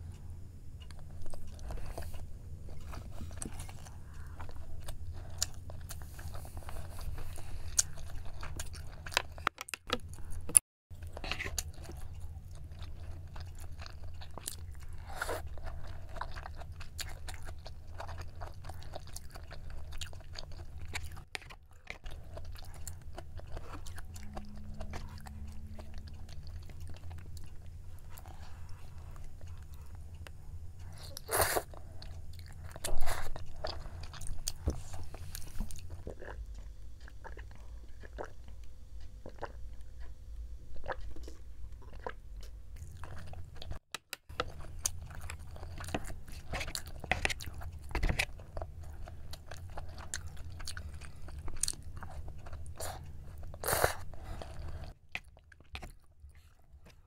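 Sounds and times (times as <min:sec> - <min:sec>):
low steady hum: 0:00.0 - 0:57.0
chewing and mouth sounds: 0:00.1 - 0:57.0.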